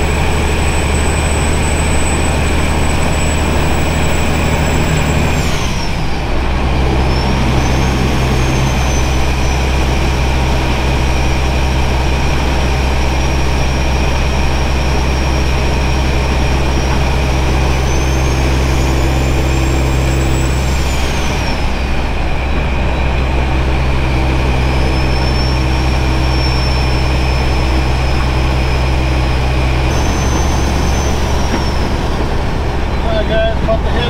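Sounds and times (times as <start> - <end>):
diesel truck engine: 0.0 - 34.0
turbo whistle: 24.6 - 32.2.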